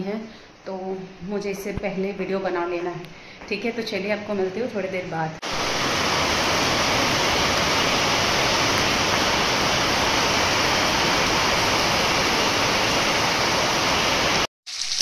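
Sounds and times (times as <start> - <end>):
heavy rain on pavement: 5.4 - 14.5.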